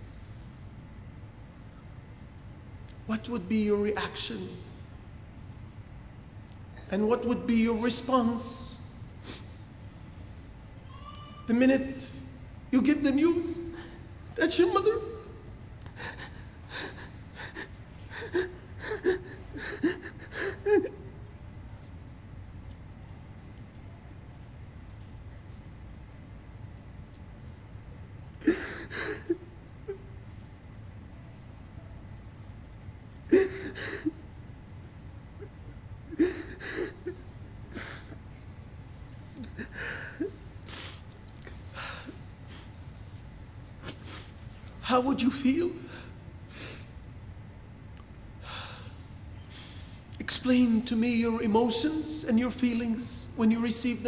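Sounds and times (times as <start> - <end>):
man sobbing: 12.8 - 21.3, 28.4 - 30.2, 33.3 - 34.4, 35.3 - 38.4, 39.3 - 42.6.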